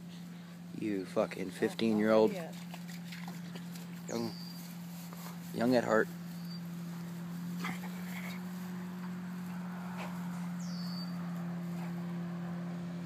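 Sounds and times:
low hum: 0.0 - 13.0
dogs rustling through grass: 0.2 - 12.4.

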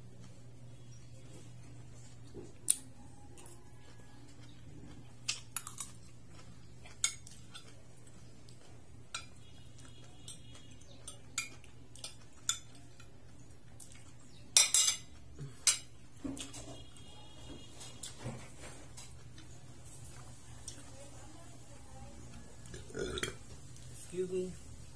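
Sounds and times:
spoon and fork clinking on plate: 9.1 - 9.4, 11.0 - 13.1, 14.5 - 16.7.

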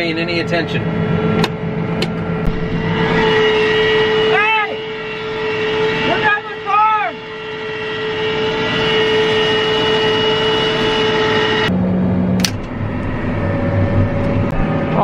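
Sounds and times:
high whine: 0.0 - 15.0
sharp click: 12.4 - 12.7.

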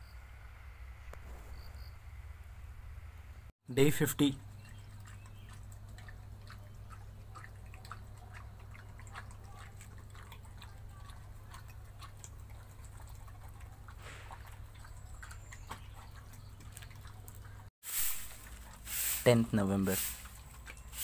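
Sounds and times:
dog chewing and lapping: 4.3 - 21.0.

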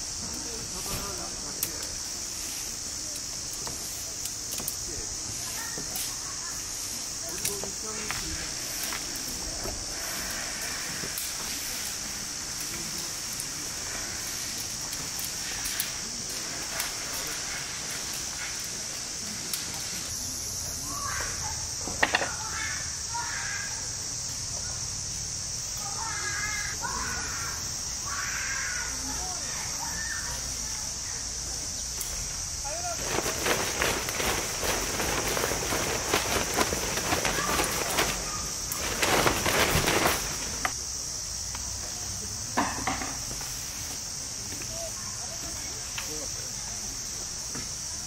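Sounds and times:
rustling: 0.0 - 20.2, 31.8 - 40.8
insects chirring: 0.0 - 48.0
steady high hiss: 0.0 - 48.0.

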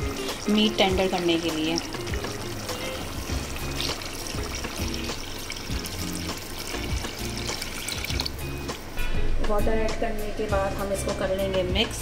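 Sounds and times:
water pouring into a pot: 0.0 - 8.8
music with steady beat: 0.0 - 12.0.

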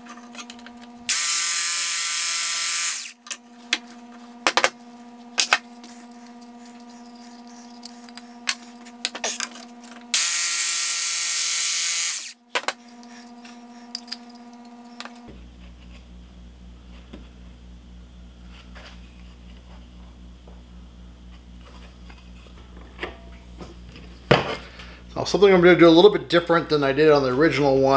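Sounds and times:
jigsaw cutting wood: 1.1 - 3.2, 10.1 - 12.4.

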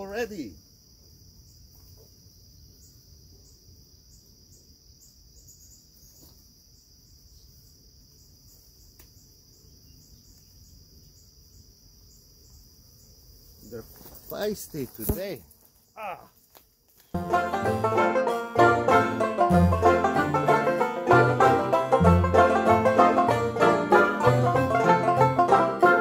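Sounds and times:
insect trill: 0.0 - 17.2.

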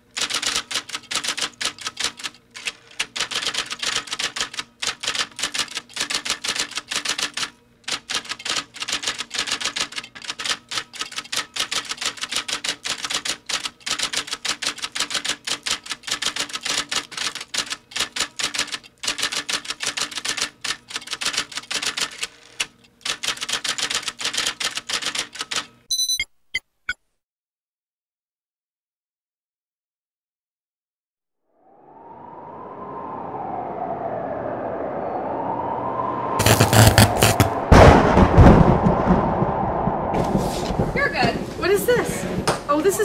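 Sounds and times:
typewriter keystroke clicks: 0.2 - 25.7.

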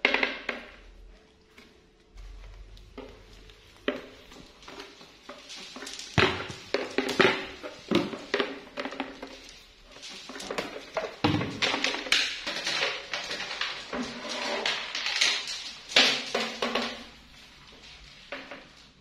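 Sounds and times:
plastic chair scraping on tiles: 3.8 - 18.8.

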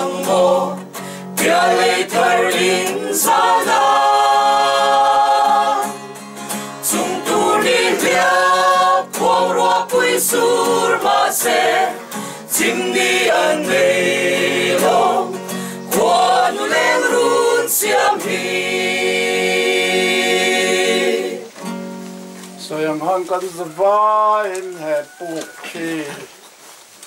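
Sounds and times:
group singing: 0.0 - 21.6
strummed acoustic guitar: 0.0 - 22.8.

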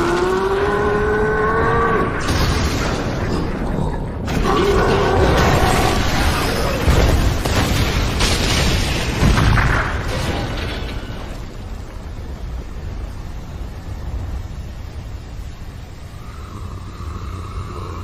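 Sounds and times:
booming rumble of crashes: 2.1 - 14.0.

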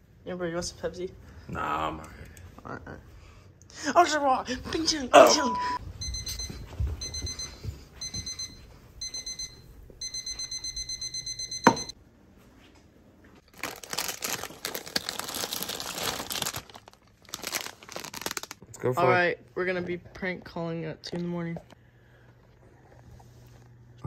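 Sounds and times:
alarm clock beeping: 5.3 - 12.0
plastic snack bags rustling: 13.4 - 18.7.

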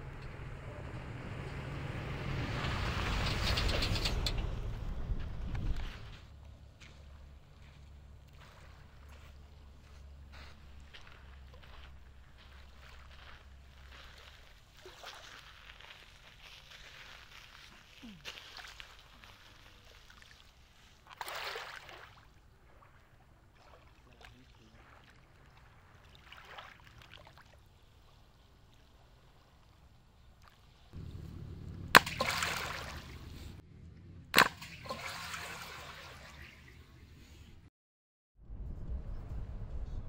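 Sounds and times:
water lapping at shoreline: 5.6 - 33.6, 34.4 - 37.4
sharp water splashes: 14.1 - 28.0, 31.9 - 33.6, 34.3 - 36.8
low steady rumble: 30.9 - 34.8.

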